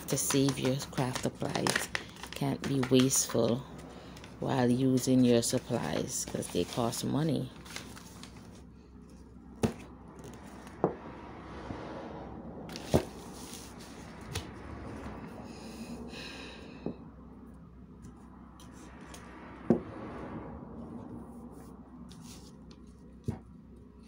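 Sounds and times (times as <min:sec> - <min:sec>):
paper crinkling: 0:00.0 - 0:08.7.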